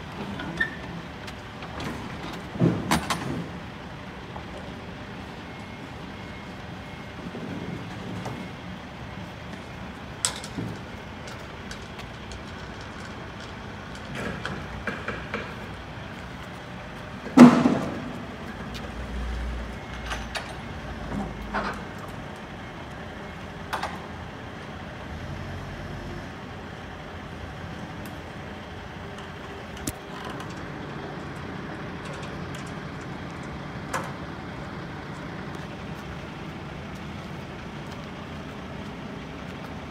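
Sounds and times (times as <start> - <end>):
trailer doors clanking and rattling: 0.0 - 4.5, 17.2 - 19.1, 19.9 - 22.3, 28.8 - 36.4.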